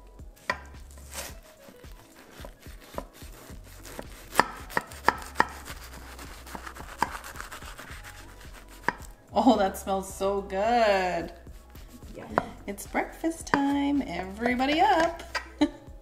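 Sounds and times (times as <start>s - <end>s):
knife cutting crisp pastry crust: 0.4s - 9.1s.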